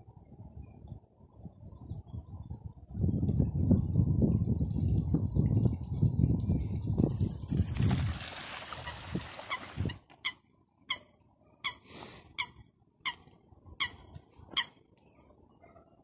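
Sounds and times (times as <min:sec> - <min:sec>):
water splashing: 0:07.5 - 0:09.9.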